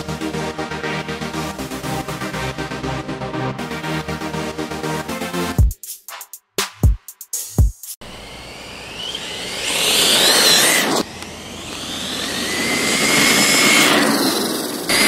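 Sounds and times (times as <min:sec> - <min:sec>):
rc truck motor whining: 0:08.0 - 0:15.0.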